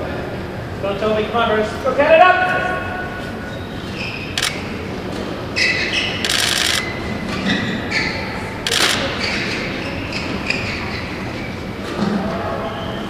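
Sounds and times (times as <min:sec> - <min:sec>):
shoes squeaking on court: 0:03.5 - 0:11.5.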